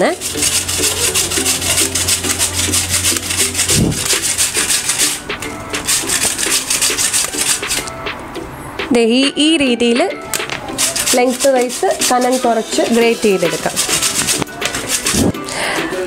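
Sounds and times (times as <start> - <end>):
potato grated on steel grater: 0.0 - 7.9, 10.7 - 15.4.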